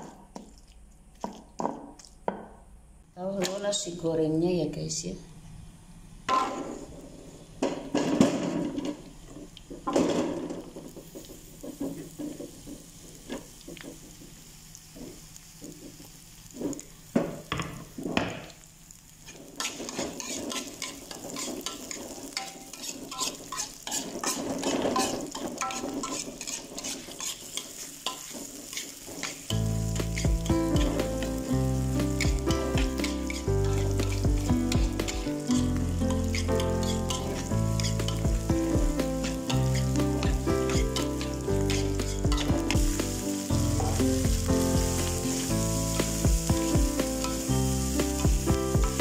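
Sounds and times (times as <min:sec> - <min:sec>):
shallots sizzling in oil: 0:00.0 - 0:02.3, 0:05.6 - 0:49.0
metal spatula scraping wok: 0:19.2 - 0:49.0
background music: 0:29.6 - 0:49.0.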